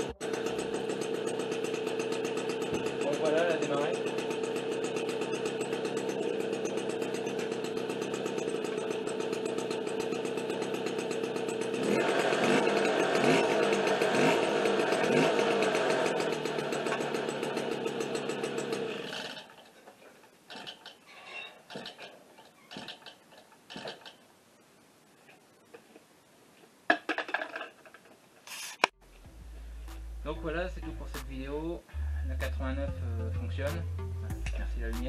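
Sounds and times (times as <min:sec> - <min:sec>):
moped engine revving: 0:00.0 - 0:19.7, 0:28.9 - 0:35.0.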